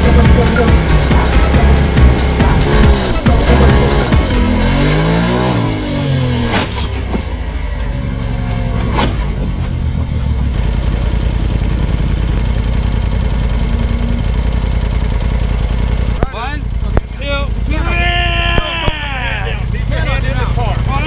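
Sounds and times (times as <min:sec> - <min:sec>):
utv engine revving and idling: 0:00.0 - 0:21.0
vehicle tipping over knocks: 0:06.4 - 0:10.6.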